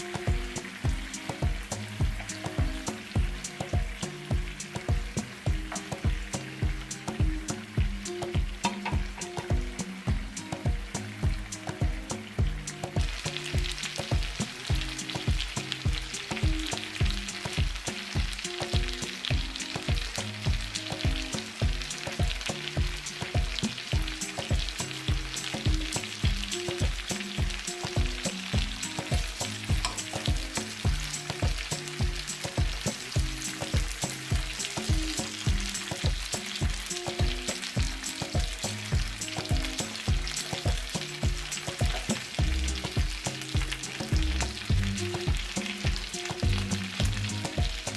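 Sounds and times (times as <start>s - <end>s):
background music with steady beat: 0.0s - 47.9s
chicken sizzling in frying pan: 0.0s - 47.9s.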